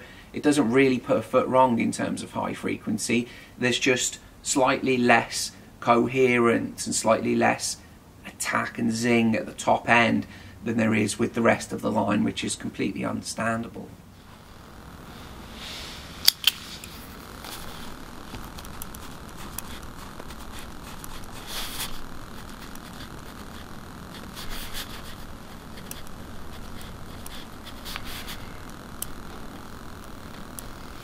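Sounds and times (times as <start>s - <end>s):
pen scratching on paper: 18.8s - 28.5s
sharp clicks: 26.8s - 29.2s.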